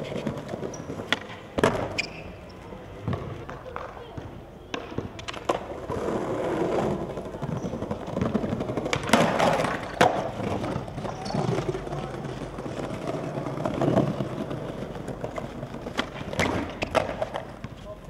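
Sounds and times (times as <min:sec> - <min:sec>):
skateboard wheels rolling on paving: 0:00.0 - 0:18.0
skateboard cracking on ground: 0:03.2 - 0:17.8.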